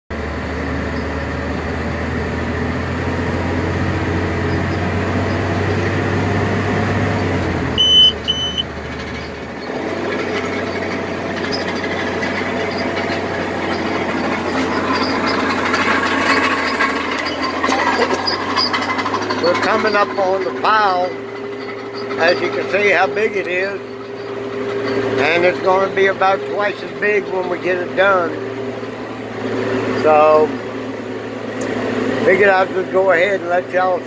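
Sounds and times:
diesel truck engine hum: 0:00.1 - 0:34.0
rattling: 0:03.7 - 0:26.7
short high beeps: 0:07.8 - 0:08.7.

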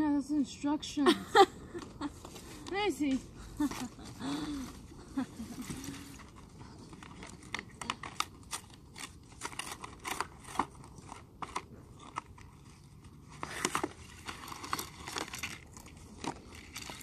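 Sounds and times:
plastic packaging crackling: 0:05.2 - 0:17.0.

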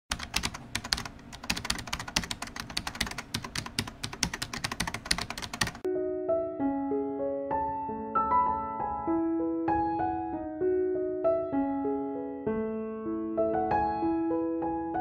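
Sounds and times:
rapid keyboard typing: 0:00.1 - 0:05.9
piano music sustained notes: 0:05.6 - 0:15.0.

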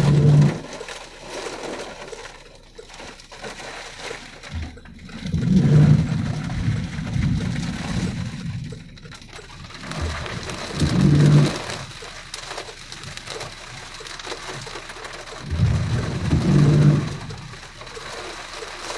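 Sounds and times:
heavy rain on a car: 0:00.0 - 0:18.9
windshield wipers sweeping: 0:00.0 - 0:18.9.

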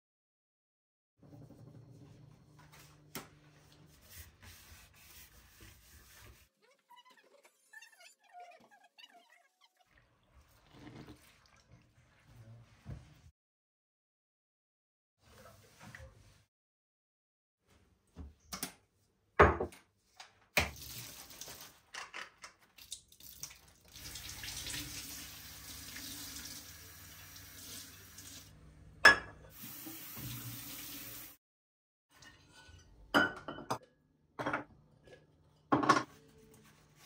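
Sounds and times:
glassware knocks and clinks: 0:19.4 - 0:19.8, 0:29.0 - 0:29.4, 0:33.1 - 0:33.8, 0:34.4 - 0:34.7, 0:35.7 - 0:36.1
tap running into sink: 0:29.6 - 0:30.8.

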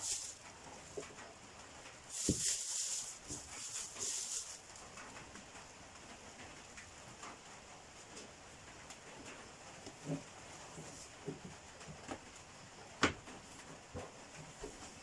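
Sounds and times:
fruit bunches rustling: 0:00.0 - 0:05.2.

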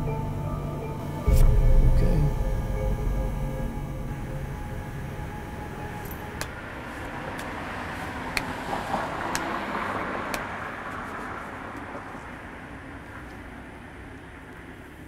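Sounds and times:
car passing by: 0:04.1 - 0:15.0.

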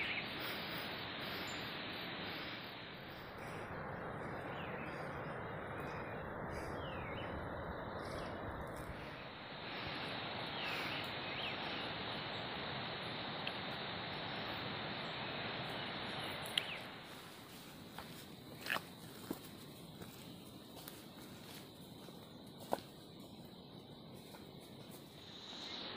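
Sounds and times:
bird chirps: 0:00.0 - 0:00.4, 0:03.1 - 0:09.2
steady forest hiss: 0:00.0 - 0:25.9.

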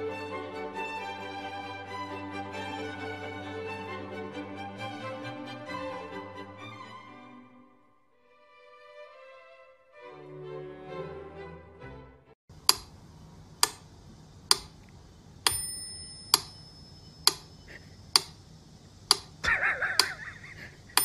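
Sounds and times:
sharp metallic tick: 0:12.6 - 0:13.0, 0:13.6 - 0:13.9, 0:14.5 - 0:18.4, 0:19.1 - 0:19.4, 0:20.0 - 0:20.2
bell-like ring: 0:15.5 - 0:17.4.

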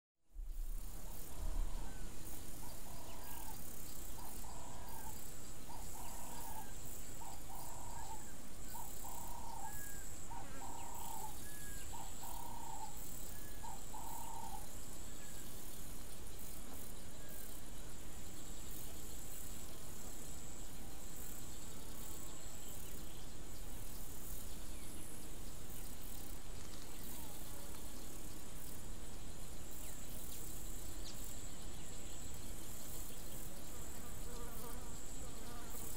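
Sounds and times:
insect trill: 0:00.3 - 0:35.9
soft hiss: 0:11.3 - 0:35.9.

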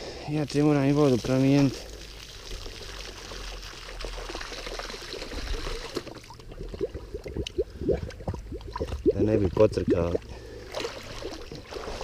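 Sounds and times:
stream trickling: 0:00.2 - 0:12.0
bottle gurgling underwater: 0:04.0 - 0:12.0.

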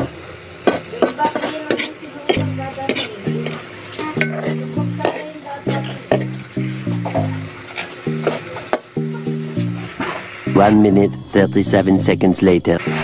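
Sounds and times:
food sizzling: 0:00.0 - 0:13.0
metal ladle scraping wok: 0:01.0 - 0:03.2, 0:05.0 - 0:05.3
background music with bass: 0:02.4 - 0:05.1, 0:05.7 - 0:13.0.

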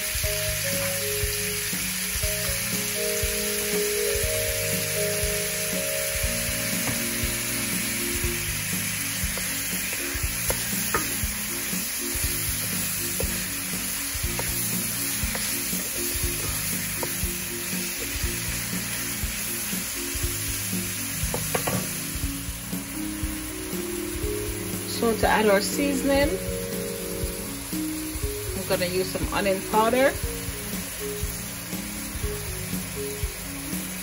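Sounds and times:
background music: 0:00.0 - 0:34.0
food sizzling in a wok: 0:00.0 - 0:34.0
wooden spoon knocking on pan: 0:06.8 - 0:07.3, 0:09.3 - 0:11.4, 0:12.6 - 0:13.5, 0:14.3 - 0:14.6, 0:15.2 - 0:17.3, 0:21.2 - 0:22.0.

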